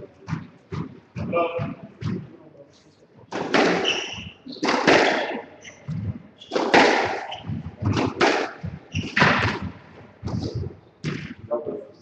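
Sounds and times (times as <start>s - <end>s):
squash ball hits: 3.3s - 11.4s.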